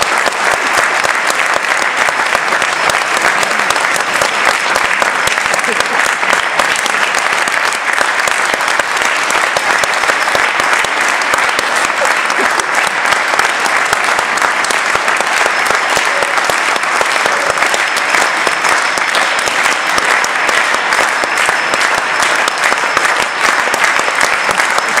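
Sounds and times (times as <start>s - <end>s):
audience applauding: 0.0s - 25.0s.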